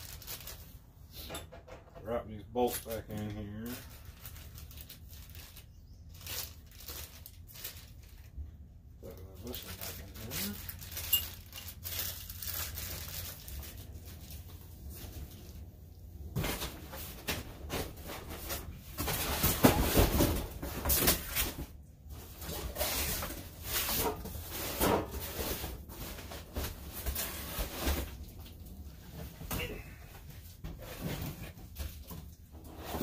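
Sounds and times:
handling knocks and clatters: 10.8 - 12.0.

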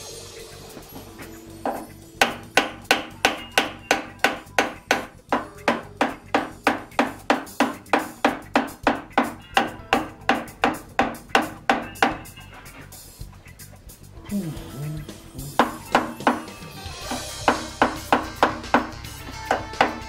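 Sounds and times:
mallet tapping on metal: 1.6 - 12.3, 17.1 - 20.0.

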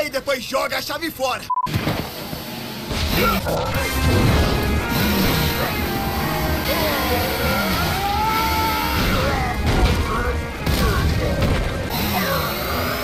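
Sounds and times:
dramatic music with bending tones: 2.6 - 13.0.

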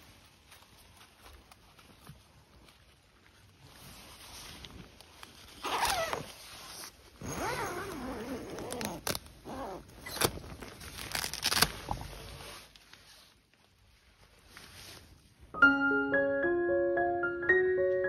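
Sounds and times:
tent door zipper pulled open: 5.5 - 13.3.

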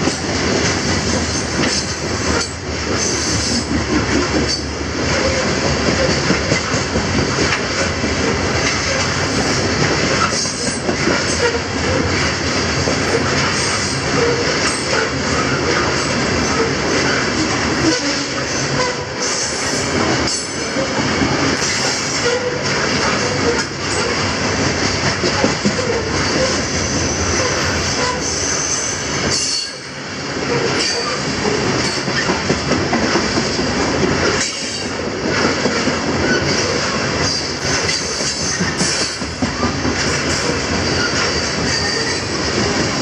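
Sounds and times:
steel wheels clattering over rails: 0.0 - 43.0
high wheel squeal: 25.8 - 29.9, 40.8 - 42.4.

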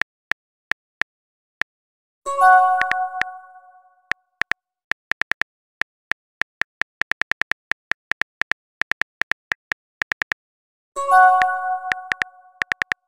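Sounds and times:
phone keyboard typing clicks: 2.8 - 3.3, 4.4 - 10.4, 11.4 - 13.0.

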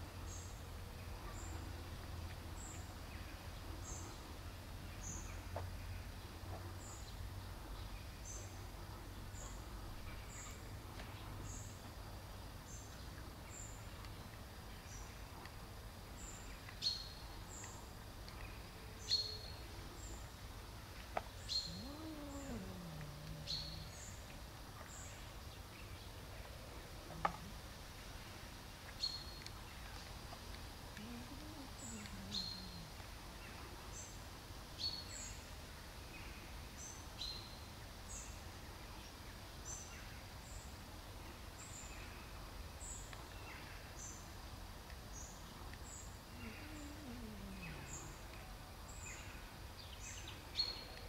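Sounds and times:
small birds chirping: 0.1 - 34.2, 36.1 - 51.0
low hum: 21.5 - 24.4
cat meowing: 21.7 - 23.9.

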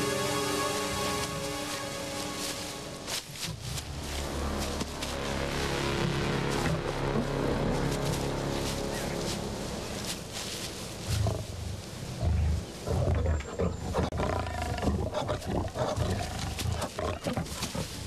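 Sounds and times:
tigers growling: 11.0 - 18.0.

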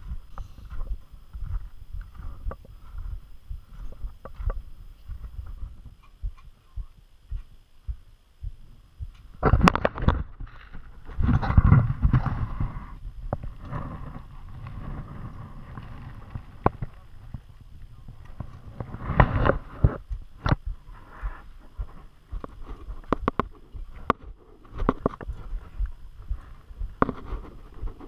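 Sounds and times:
low rumble: 0.0 - 28.0.

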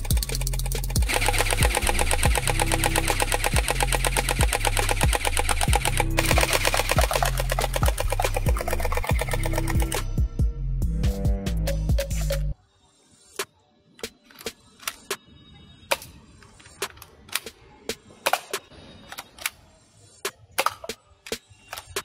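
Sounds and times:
gel blaster firing rapid clicks: 0.0 - 10.0
background music with kick drum: 0.0 - 12.6.

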